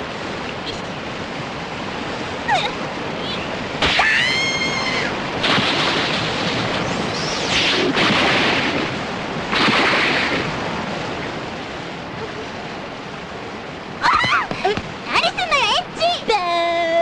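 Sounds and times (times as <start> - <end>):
wind whooshes: 0.0 - 15.1.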